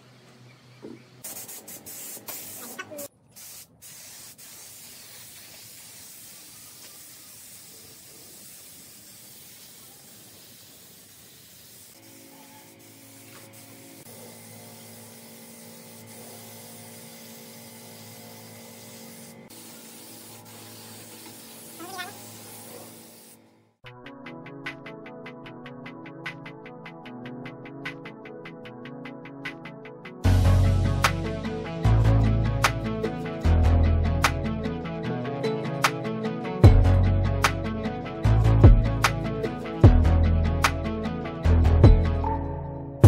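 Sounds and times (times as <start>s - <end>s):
spray gun hissing: 1.2s - 23.4s
background music: 23.8s - 43.0s.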